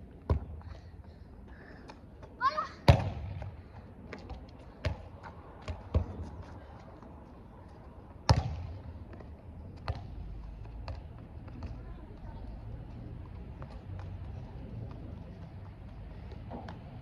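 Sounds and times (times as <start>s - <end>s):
ball thudding on ground: 2.8s - 6.2s, 8.3s - 8.8s.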